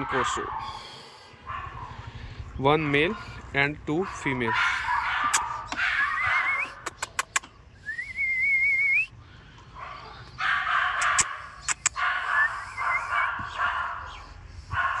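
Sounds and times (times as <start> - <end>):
sharp clicks: 6.8 - 7.5, 11.0 - 12.0.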